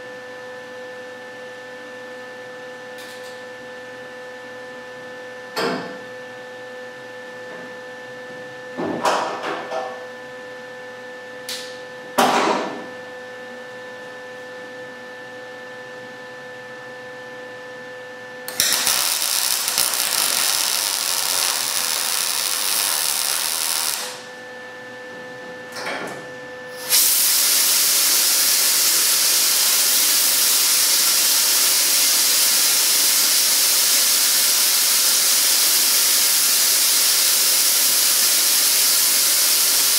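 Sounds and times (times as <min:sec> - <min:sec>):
loud even hiss: 0:18.5 - 0:24.2, 0:26.8 - 0:35.4
welder arc crackling: 0:18.5 - 0:24.3.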